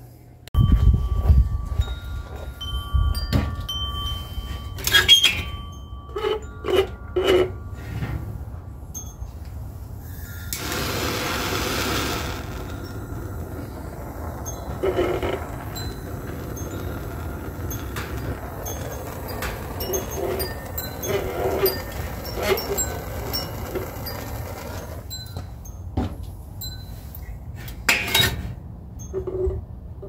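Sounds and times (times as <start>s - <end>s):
wind chimes ringing: 0.6s - 10.5s, 12.2s - 27.6s, 28.9s - 29.5s
short pitched squeaks: 4.8s - 8.0s, 11.6s - 17.0s
rushing hiss: 10.1s - 13.8s.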